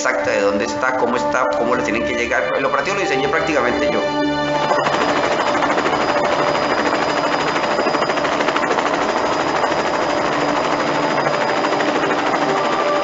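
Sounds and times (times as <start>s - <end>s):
faint steady tones: 0.0s - 13.0s
rapid mechanical pulsing: 2.6s - 13.0s.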